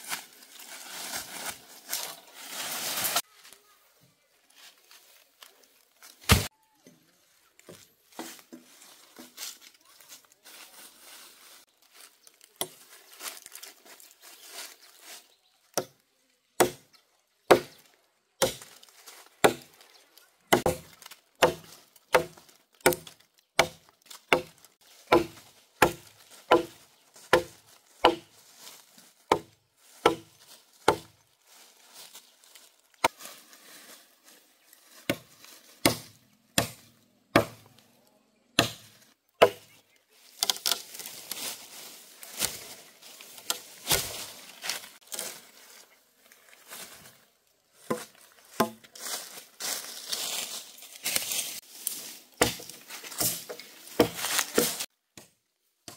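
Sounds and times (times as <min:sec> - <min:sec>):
blade chopping into wood: 0:06.2 - 0:06.5, 0:20.5 - 0:28.2, 0:29.3 - 0:30.3, 0:38.6 - 0:39.7, 0:52.4 - 0:55.3.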